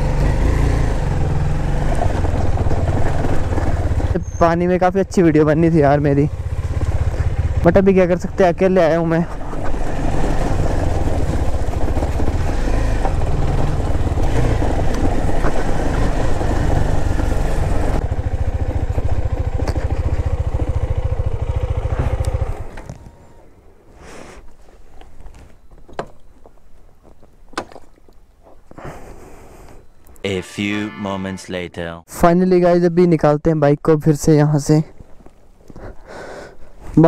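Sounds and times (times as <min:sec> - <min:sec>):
motorcycle engine running: 0:00.0 - 0:22.9.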